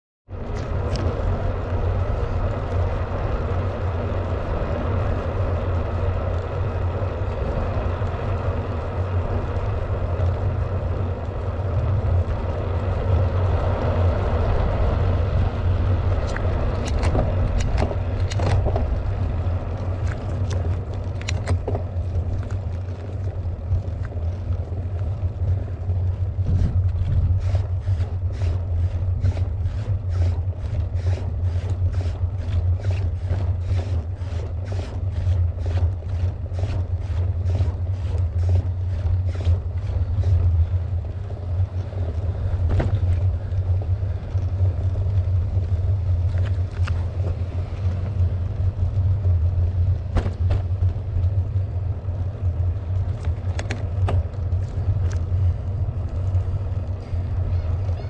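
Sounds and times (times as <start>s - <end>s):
tyre noise on paved road: 0.2s - 58.0s
wind rumbling on microphone: 0.3s - 58.0s
regular ticks: 16.1s - 42.3s.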